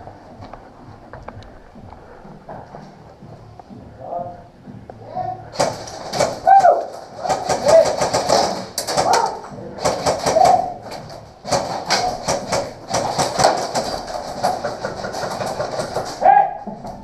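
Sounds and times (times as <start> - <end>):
airsoft guns firing bursts: 5.6 - 16.2
faint shouting: 6.4 - 8.0, 10.2 - 10.8, 16.2 - 16.8.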